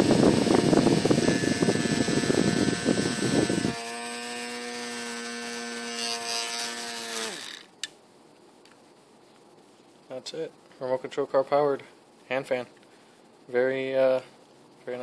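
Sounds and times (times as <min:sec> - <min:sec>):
fan airflow rushing on microphone: 0:00.0 - 0:03.8
small motor whine: 0:00.0 - 0:07.7.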